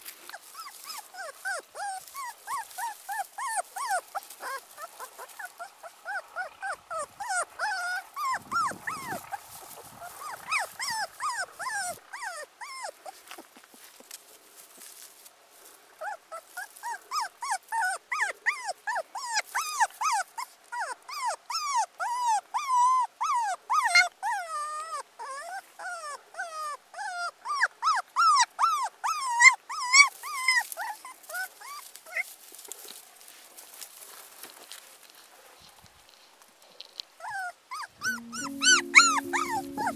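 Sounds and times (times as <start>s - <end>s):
puppy whimpering cries: 0.3s - 13.2s, 16.0s - 32.3s, 37.2s - 39.9s.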